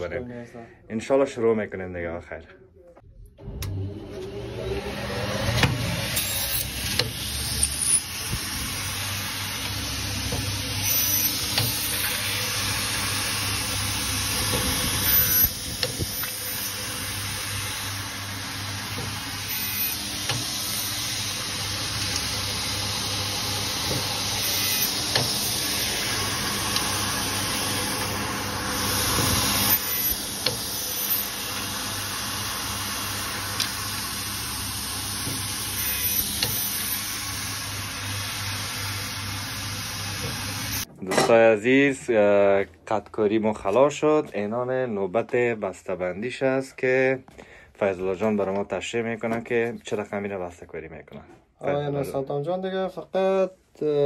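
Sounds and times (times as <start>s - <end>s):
cutting machine running: 3.4s - 40.9s.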